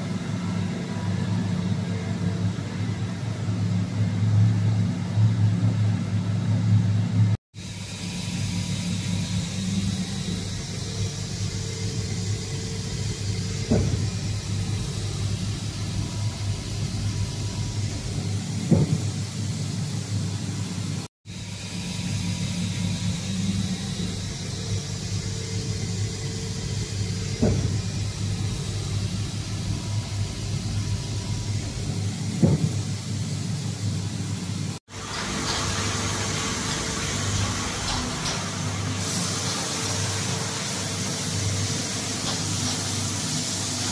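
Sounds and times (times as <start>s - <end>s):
machine hum with hiss: 0.0s - 43.9s
sharp machine knocks: 13.6s - 14.9s, 17.8s - 19.3s, 27.2s - 28.6s, 31.5s - 33.0s.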